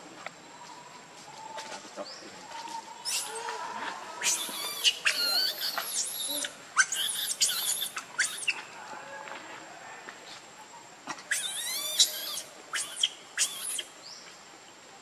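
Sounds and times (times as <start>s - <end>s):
baby monkey squealing: 3.0s - 3.4s, 4.2s - 8.6s, 11.3s - 13.9s.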